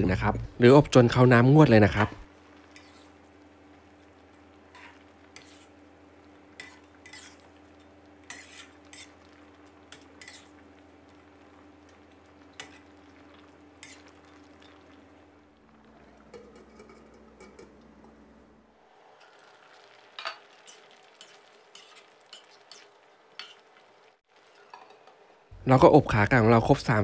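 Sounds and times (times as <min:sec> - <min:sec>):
metal ladle scraping pot: 0:04.7 - 0:05.7, 0:06.6 - 0:07.5, 0:08.2 - 0:09.2.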